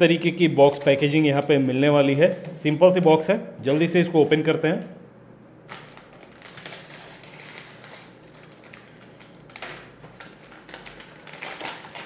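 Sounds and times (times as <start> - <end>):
paper crinkling and rustling: 5.7 - 12.0.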